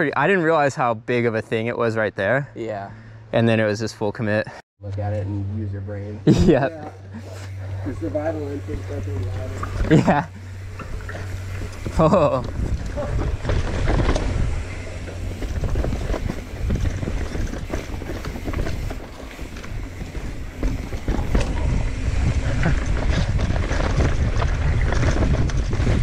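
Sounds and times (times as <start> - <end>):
bike rattling over bumps: 7.3 - 26.0
tyres rumbling over dirt: 7.5 - 26.0
wind buffeting microphone: 10.5 - 26.0.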